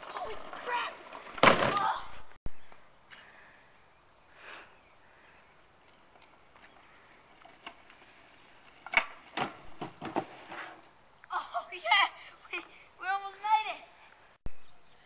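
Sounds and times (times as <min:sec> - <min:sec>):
cart wheels rattling on asphalt: 0:00.0 - 0:01.8, 0:05.8 - 0:10.8.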